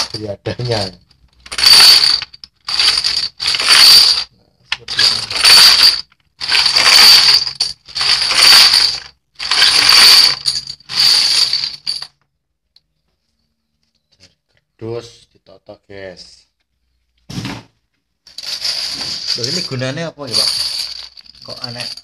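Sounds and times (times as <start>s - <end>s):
metal bottle caps clattering: 0.0s - 12.1s, 18.3s - 22.0s.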